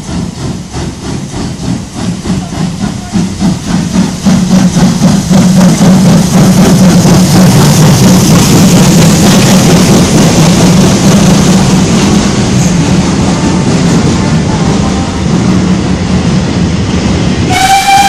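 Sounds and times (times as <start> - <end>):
steam hissing: 0.0 - 16.4
train rumbling and rattling on rails: 0.0 - 18.0.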